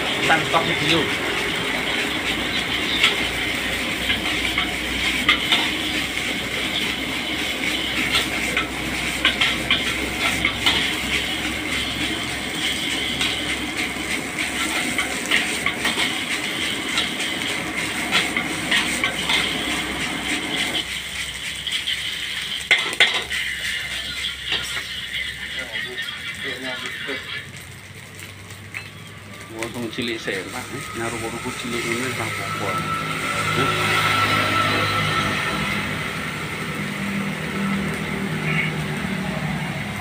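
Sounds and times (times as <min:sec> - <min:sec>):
gas burner rushing: 0:00.0 - 0:40.0
rice sizzling in a wok: 0:00.0 - 0:40.0
metal ladle scraping a wok: 0:00.1 - 0:25.5, 0:30.3 - 0:36.7.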